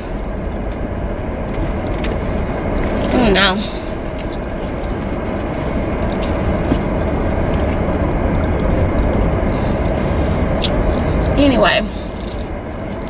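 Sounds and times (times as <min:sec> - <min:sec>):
car interior road and engine noise: 0:00.0 - 0:13.0.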